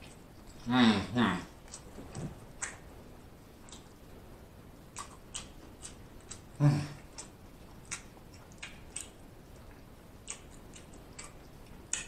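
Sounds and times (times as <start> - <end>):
low throat vocal sound: 0.6 - 1.6, 6.5 - 7.2
wet chewing smacks: 4.9 - 12.0.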